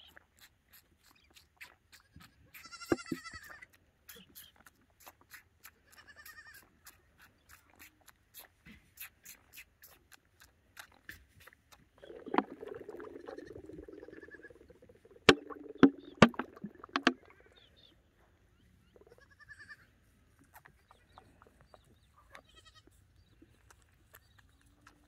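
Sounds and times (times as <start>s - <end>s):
animal sucking from bottle: 0.0s - 17.7s, 23.3s - 25.0s
low bleating animal call: 18.9s - 19.9s.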